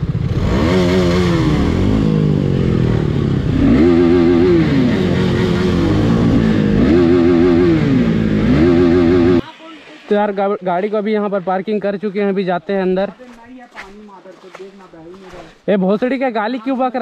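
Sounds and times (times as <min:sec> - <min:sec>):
motorcycle engine revving: 0:00.0 - 0:11.9.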